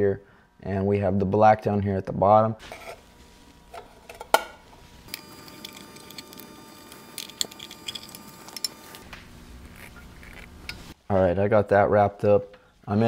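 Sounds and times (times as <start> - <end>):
wire connections being handled: 3.7 - 10.9.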